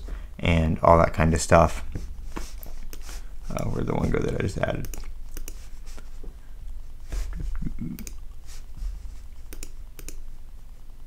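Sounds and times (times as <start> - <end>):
computer mouse clicking: 4.2 - 5.6, 7.9 - 8.4, 9.4 - 10.2.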